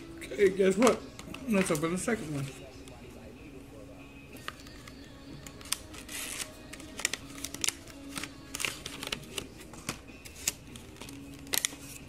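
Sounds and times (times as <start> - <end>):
packaging rustling and crinkling: 5.5 - 12.0.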